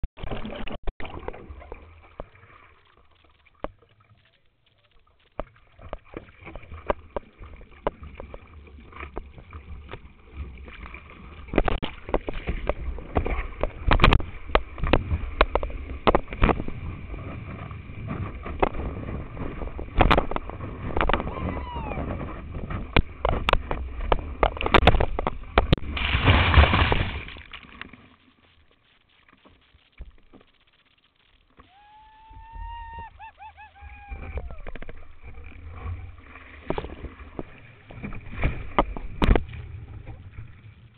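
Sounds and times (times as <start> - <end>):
water knocking on camera: 11.5 - 25.9
whitewater rushing and splashing: 20.0 - 22.9.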